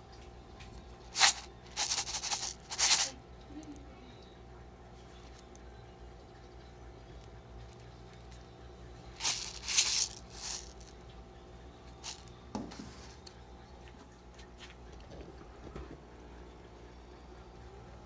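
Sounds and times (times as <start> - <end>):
faint steady hum: 0.0 - 18.0
paper cup rustling and scraping: 1.1 - 3.1, 9.2 - 10.9.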